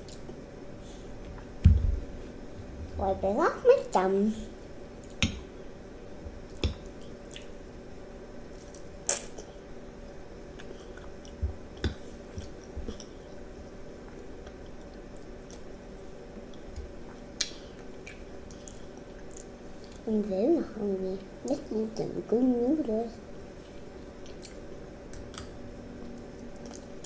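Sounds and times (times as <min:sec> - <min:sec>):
child chewing: 0:00.0 - 0:00.4, 0:06.5 - 0:07.7, 0:08.5 - 0:20.0, 0:23.6 - 0:27.0
steady low hum: 0:00.0 - 0:27.0.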